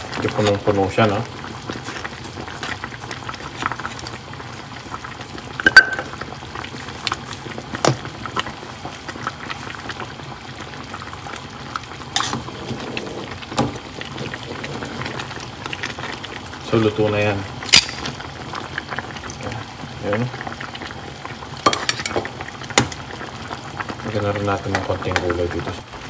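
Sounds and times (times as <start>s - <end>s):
soup boiling and bubbling: 0.0s - 26.0s
utensil clinking against pot: 21.6s - 22.2s.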